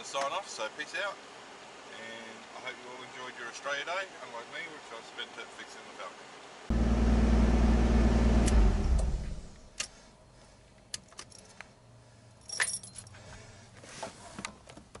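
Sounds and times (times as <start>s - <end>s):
car engine running: 6.7s - 9.7s
ignition clicks: 6.8s - 9.9s
keys jingling: 11.1s - 11.6s, 12.4s - 13.2s.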